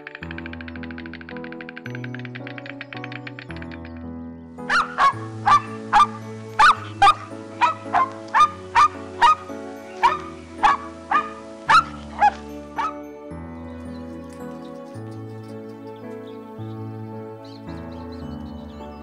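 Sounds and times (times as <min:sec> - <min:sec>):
soft background music: 0:00.0 - 0:19.0
dog barking: 0:04.7 - 0:09.4, 0:10.0 - 0:13.0.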